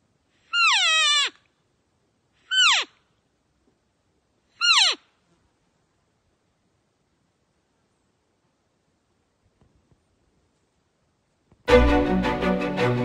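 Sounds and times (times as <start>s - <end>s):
elk mews: 0.4s - 1.5s, 2.4s - 3.0s, 4.6s - 5.0s.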